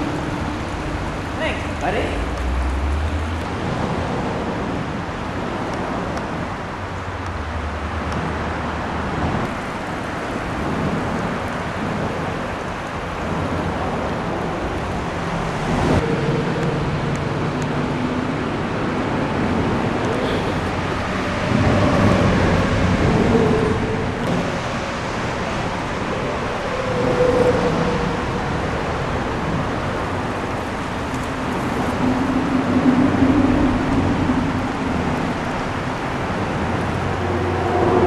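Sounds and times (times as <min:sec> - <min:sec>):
low outdoor rumble: 0:00.0 - 0:38.0.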